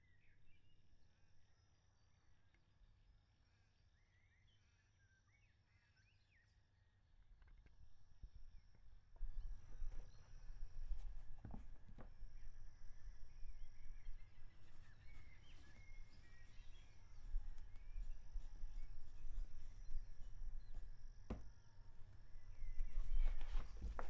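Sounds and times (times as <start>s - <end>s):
bird calls chirping: 12.2s - 24.0s
sharp tap: 21.3s - 21.6s.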